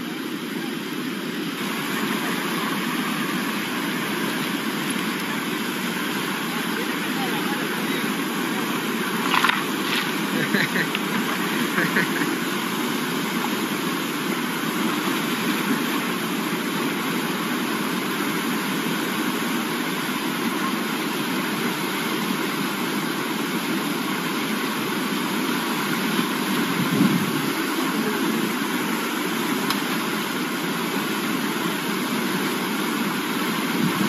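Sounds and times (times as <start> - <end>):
river rushing over rapids: 0.0 - 34.0.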